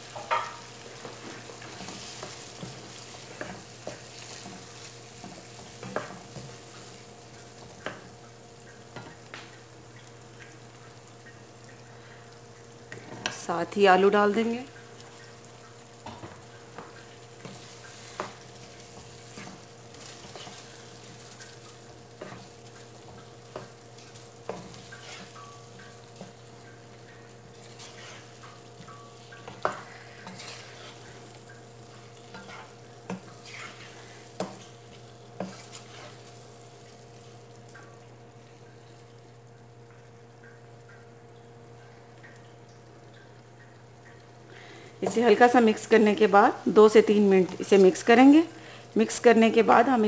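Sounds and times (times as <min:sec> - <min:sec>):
soft sizzle: 0:00.0 - 0:50.0
spoon knocking and scraping pot: 0:00.2 - 0:00.7.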